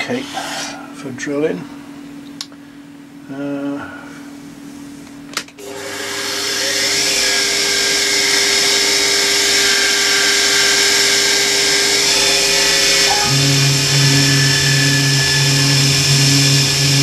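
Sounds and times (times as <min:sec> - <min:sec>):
spindle motor whine: 0:05.6 - 0:17.0
pulsing drive hum: 0:05.8 - 0:17.0.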